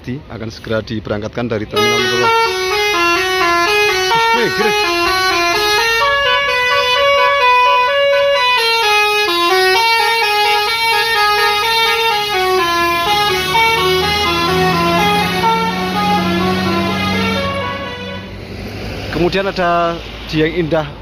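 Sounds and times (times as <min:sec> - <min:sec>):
bus engine low hum: 0:00.0 - 0:21.0
musical bus air horn melody: 0:01.8 - 0:18.4.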